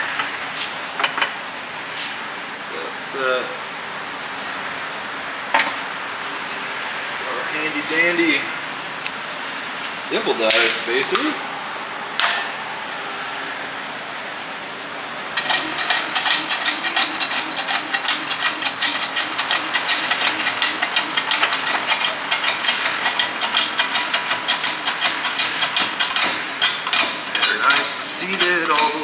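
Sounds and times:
hydraulic press pump chatter: 0:15.4 - 0:29.0.

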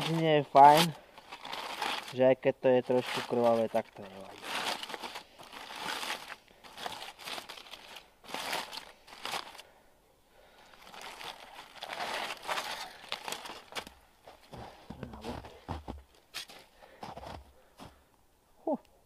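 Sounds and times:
aluminium foil crinkling and tearing: 0:00.0 - 0:02.2, 0:02.8 - 0:09.6, 0:10.7 - 0:14.5.

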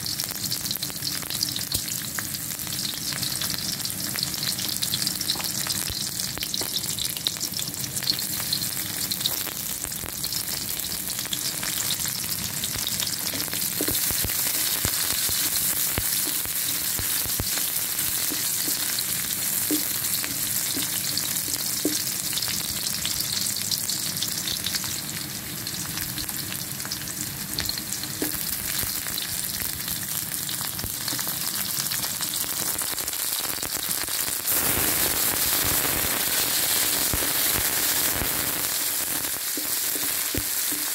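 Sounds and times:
food sizzling in hot oil: 0:00.0 - 0:40.9.

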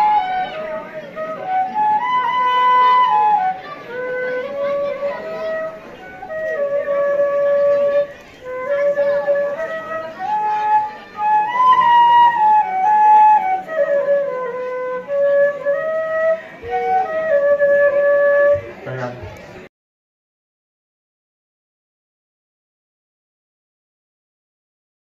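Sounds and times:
solo flute slow melody: 0:00.0 - 0:18.8.

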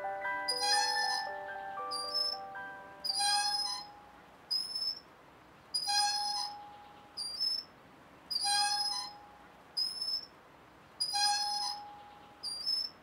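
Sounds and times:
rocking horse ride squeaking: 0:00.5 - 0:02.4, 0:03.0 - 0:05.0, 0:05.8 - 0:07.7, 0:08.3 - 0:09.2, 0:11.0 - 0:13.0.

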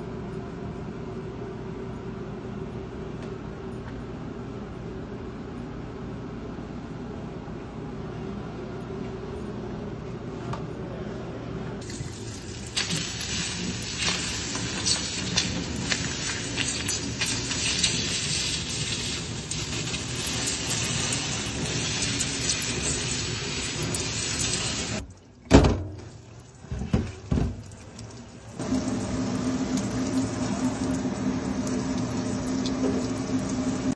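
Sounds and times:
water spraying onto hot metal: 0:11.8 - 0:25.0, 0:26.6 - 0:33.9.

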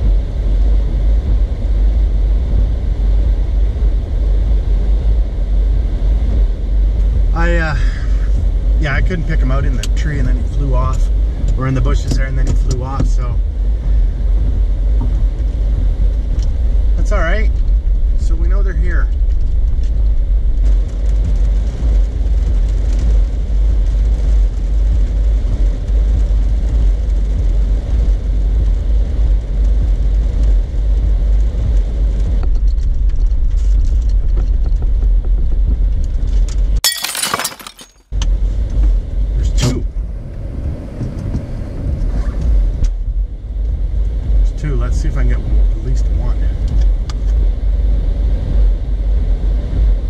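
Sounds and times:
car engine idling: 0:00.0 - 0:37.9.

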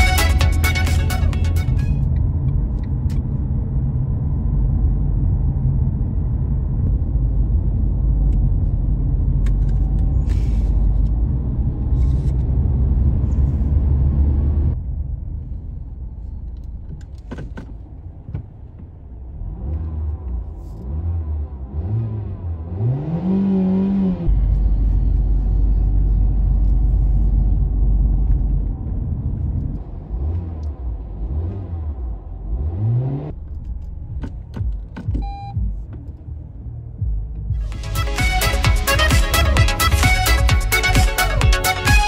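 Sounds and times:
car engine rumbling and idling: 0:00.0 - 0:42.0
engine revving in blips: 0:19.3 - 0:42.0.

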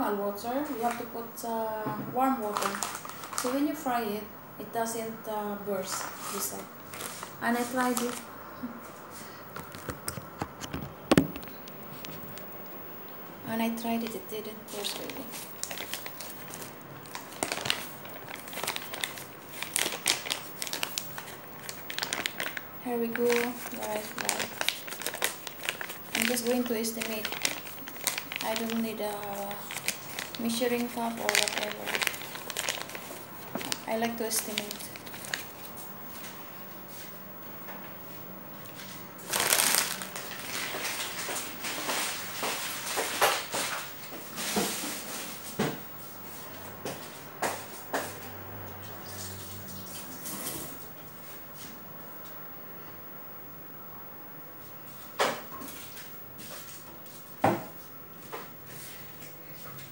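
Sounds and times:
plastic bag crinkling: 0:02.4 - 0:04.0, 0:05.9 - 0:08.3, 0:13.9 - 0:36.3, 0:38.8 - 0:45.4.

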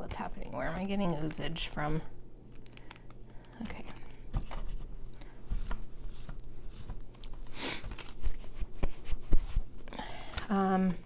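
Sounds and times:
paper rustle: 0:05.5 - 0:09.6.

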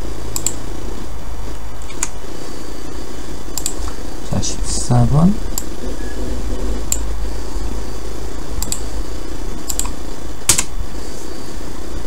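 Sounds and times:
low background hum: 0:00.0 - 0:12.0
mouse clicks: 0:03.6 - 0:03.9, 0:08.6 - 0:08.8, 0:09.6 - 0:10.7.

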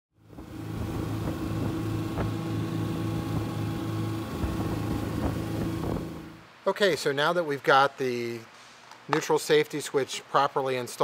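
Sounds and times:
engine running steadily: 0:00.2 - 0:06.4.

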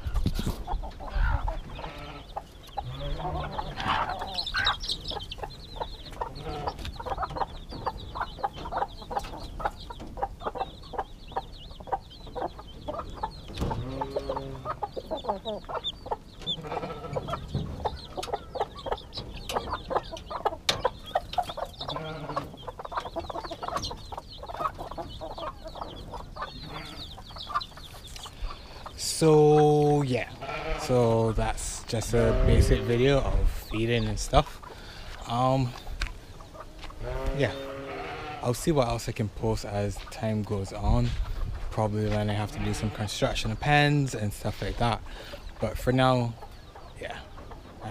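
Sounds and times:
low long chicken calls: 0:00.0 - 0:10.7, 0:12.4 - 0:29.0, 0:36.3 - 0:38.4
chickens clucking: 0:00.0 - 0:47.9
chicks peeping: 0:00.0 - 0:47.9.

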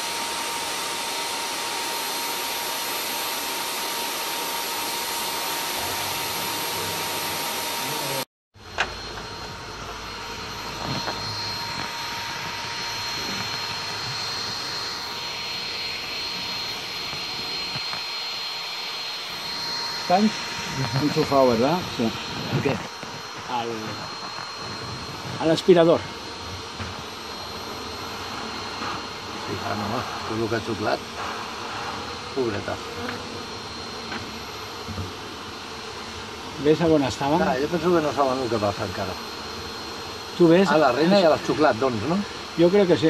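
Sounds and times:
vacuum running with high whine: 0:00.0 - 0:43.0.

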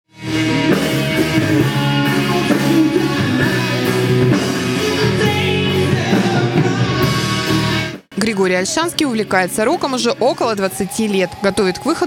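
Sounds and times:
live rock band: 0:00.1 - 0:12.0
man singing into a microphone: 0:02.0 - 0:07.7.

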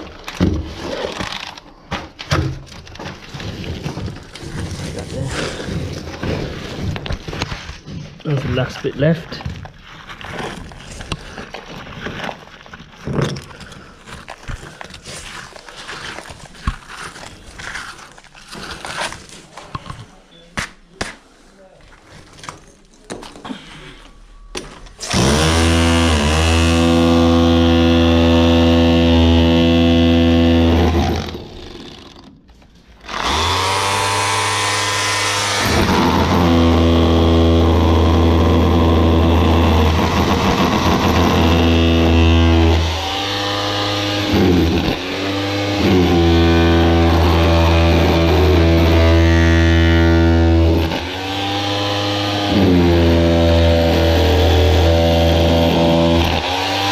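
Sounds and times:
power tool breaking concrete: 0:25.0 - 0:32.4, 0:33.0 - 0:56.9.

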